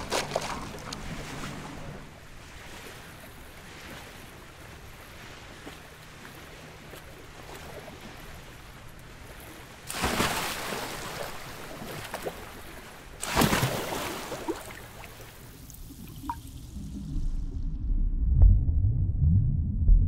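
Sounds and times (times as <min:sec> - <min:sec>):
sea water ambience: 0:00.0 - 0:17.8
loud splash into water: 0:13.2 - 0:14.6.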